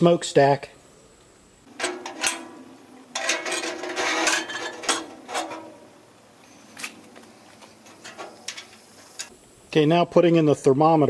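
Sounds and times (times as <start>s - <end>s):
thin steel ringing: 1.7s - 6.2s
metal scraping and clanking: 1.7s - 9.3s.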